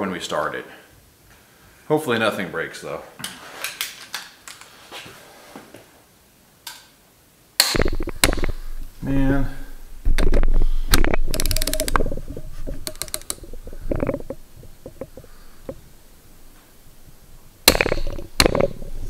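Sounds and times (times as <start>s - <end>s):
ratchet wrench clicking: 11.0s - 12.1s, 12.8s - 13.4s.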